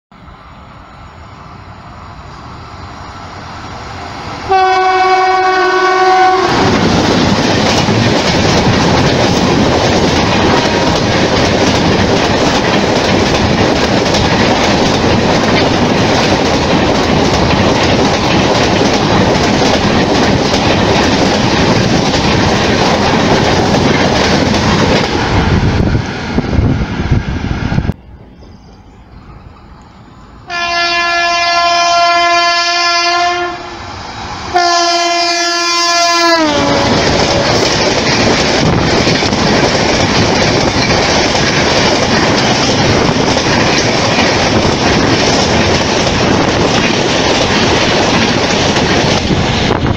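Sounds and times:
train approaching: 0.1s - 49.9s
train horn chord: 4.5s - 6.8s, 30.4s - 33.8s, 34.5s - 37.5s.

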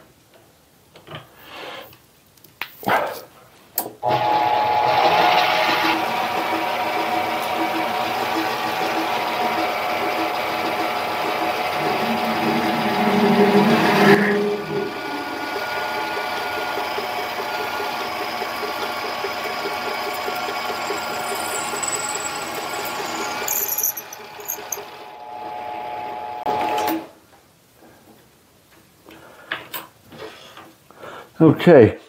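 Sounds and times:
lathe drilling into metal: 4.0s - 26.9s.

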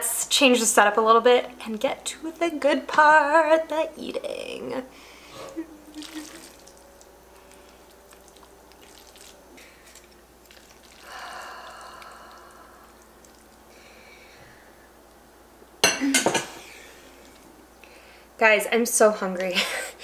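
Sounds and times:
noodles squishing in a pan: 5.2s - 14.7s, 16.6s - 18.0s.

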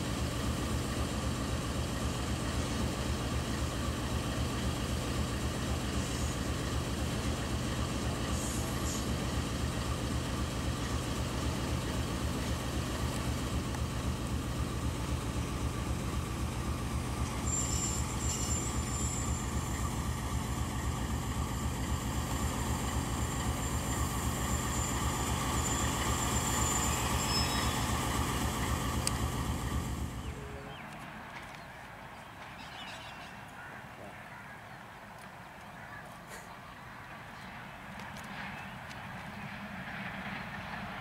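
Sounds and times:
diesel locomotive idling: 0.0s - 41.0s
thin high whine: 17.2s - 19.8s.

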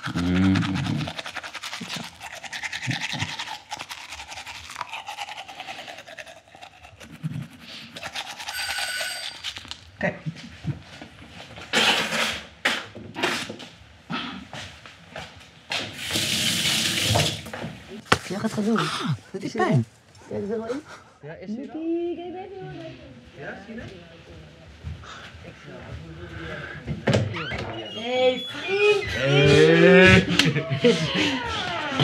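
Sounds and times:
toothbrush scrubbing teeth: 0.0s - 9.8s
brief high tone: 8.5s - 9.5s.

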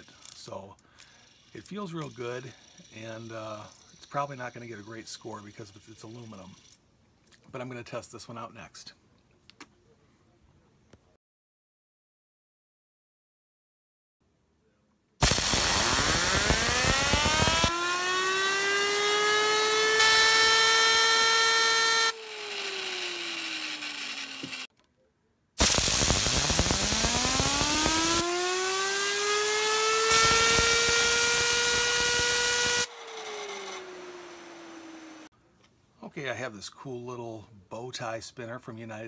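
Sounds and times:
fidget spinner whine: 0.0s - 6.8s, 15.2s - 24.7s, 25.6s - 35.3s.

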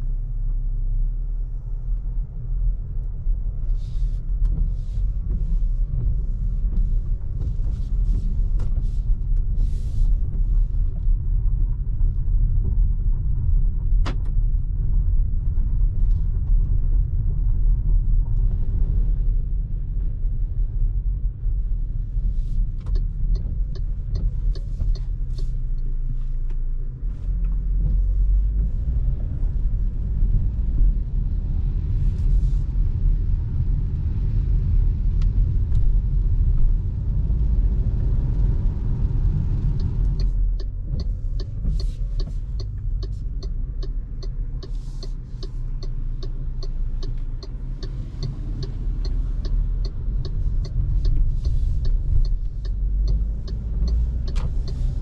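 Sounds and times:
car cabin road rumble: 0.0s - 55.0s
light regular ticking: 22.6s - 28.4s, 38.2s - 55.0s.

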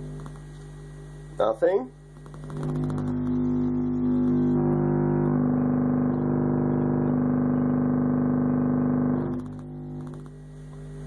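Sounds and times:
subwoofer bass tone: 2.6s - 10.1s.

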